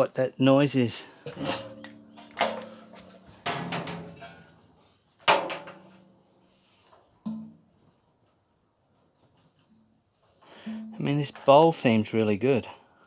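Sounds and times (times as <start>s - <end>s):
metal dryer drum clanging: 1.3s - 4.7s, 5.3s - 6.1s.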